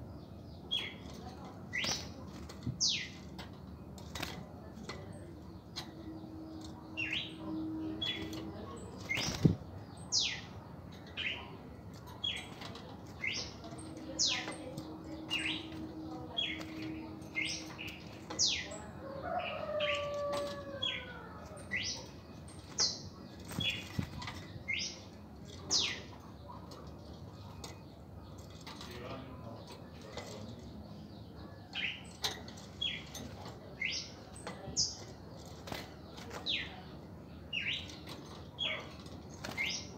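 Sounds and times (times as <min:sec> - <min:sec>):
birds calling high notes: 0:04.9 - 0:26.2.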